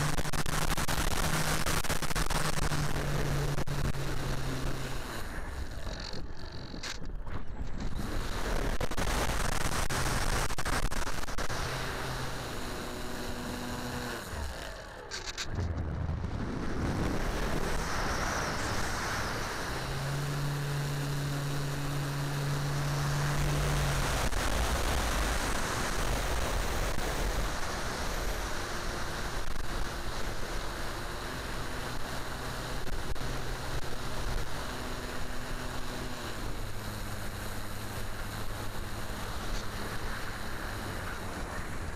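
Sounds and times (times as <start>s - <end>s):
model plane motor humming: 0.0s - 7.1s, 7.8s - 15.6s, 16.8s - 41.9s
wind rushing over microphone: 15.4s - 30.1s.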